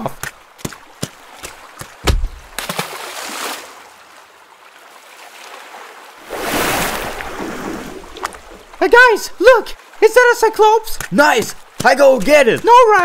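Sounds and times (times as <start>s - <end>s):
sea water sloshing: 0.2s - 8.9s
dull thump: 1.8s - 2.6s.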